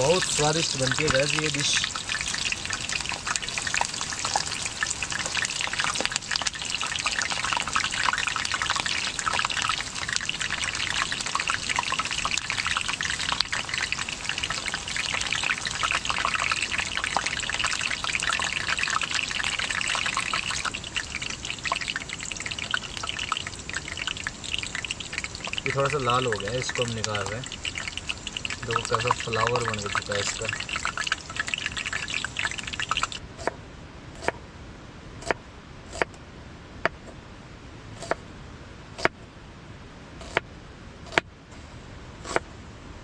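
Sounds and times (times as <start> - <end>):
onion sizzling in hot oil: 0.0 - 33.2.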